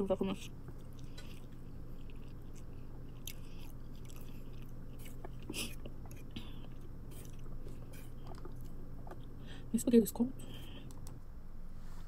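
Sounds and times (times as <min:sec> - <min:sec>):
faint steady hum: 0:00.0 - 0:12.0
person chewing wetly: 0:00.6 - 0:09.3.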